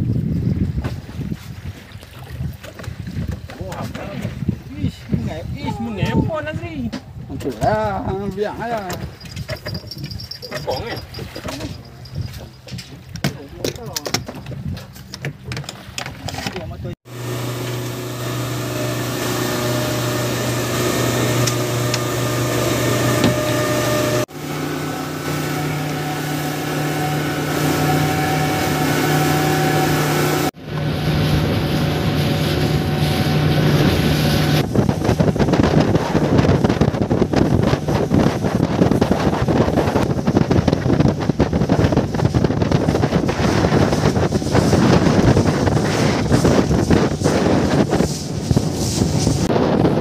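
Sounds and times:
wind buffeting microphone: 0.0s - 17.0s, 25.2s - 50.0s
outboard motor running: 7.3s - 50.0s
water rushing past: 17.1s - 50.0s.

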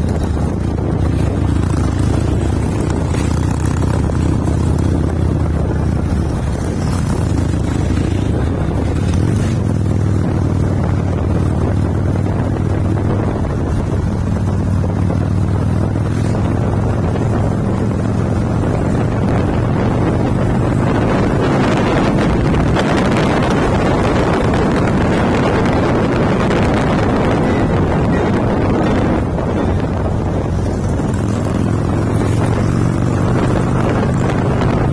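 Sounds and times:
motorcycle engine running: 0.0s - 34.9s
wind buffeting microphone: 0.0s - 34.9s.

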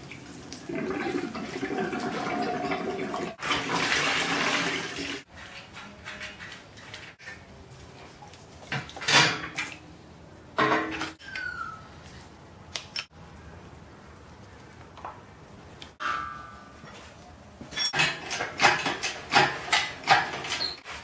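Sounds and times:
metal tools clanking: 16.0s - 20.9s.

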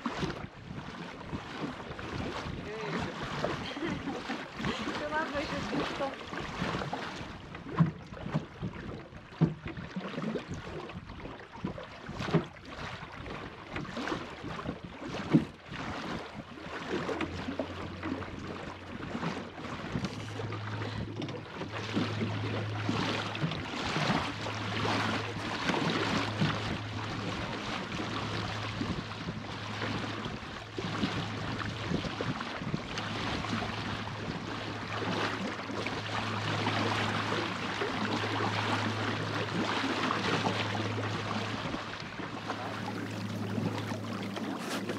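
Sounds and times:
water rushing along a hull: 0.0s - 44.9s
wind on microphone: 0.0s - 44.9s
low steady hum: 17.3s - 44.9s.

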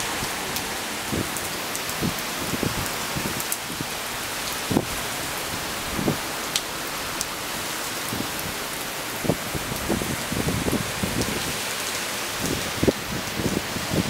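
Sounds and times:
heavy rain on wet paving: 0.0s - 14.0s
sharp rain taps: 0.0s - 14.0s.

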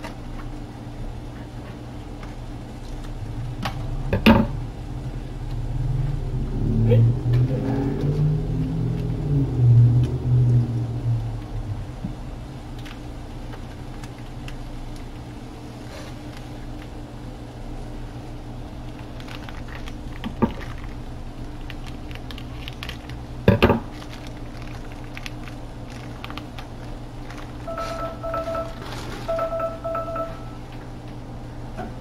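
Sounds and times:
repeating electronic beep: 27.7s - 30.6s.

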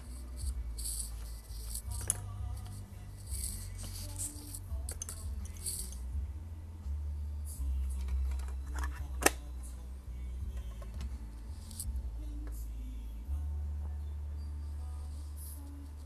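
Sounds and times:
steady low hum: 0.0s - 16.0s.

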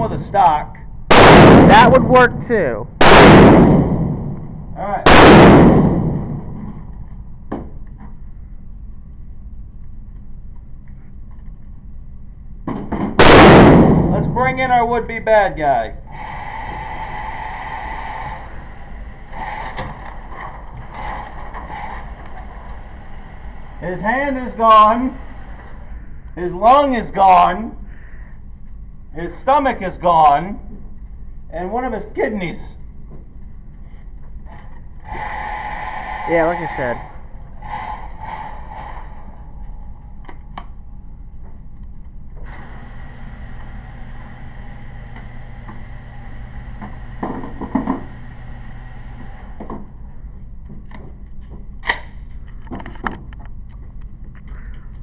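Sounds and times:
low room hum: 0.0s - 55.0s
target carrier mechanism rattling: 18.3s - 26.0s.

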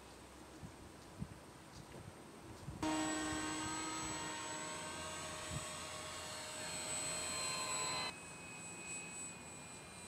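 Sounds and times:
model plane motor whining: 2.8s - 10.0s.

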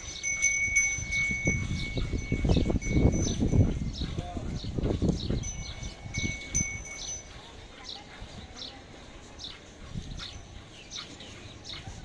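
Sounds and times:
high ringing tone: 0.0s - 3.8s, 5.4s - 7.4s.

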